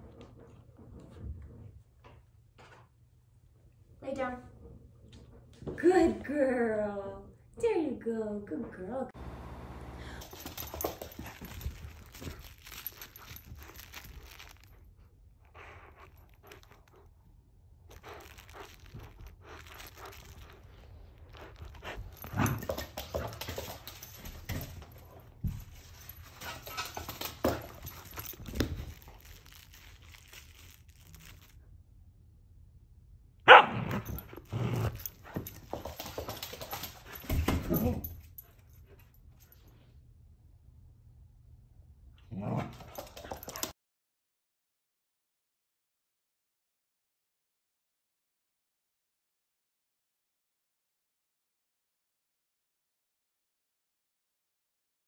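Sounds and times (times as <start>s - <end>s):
puppy barking: 33.5s - 34.0s.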